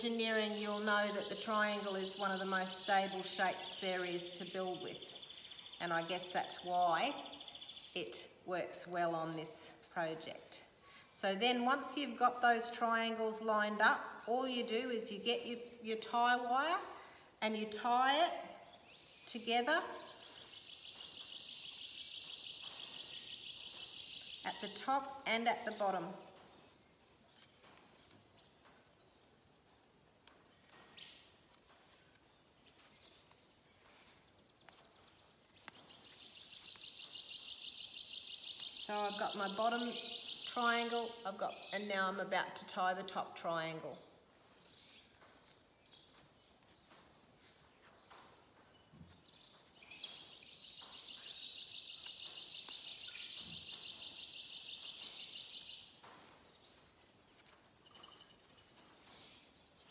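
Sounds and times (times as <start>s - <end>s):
faint bird chirps: 57.4s - 59.9s.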